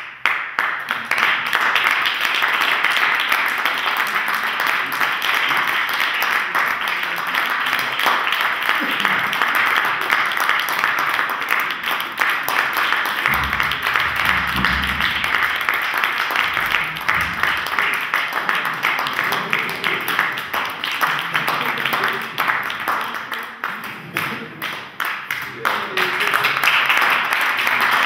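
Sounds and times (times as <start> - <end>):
audience applauding: 0.0 - 28.0
low rumble: 13.3 - 15.7.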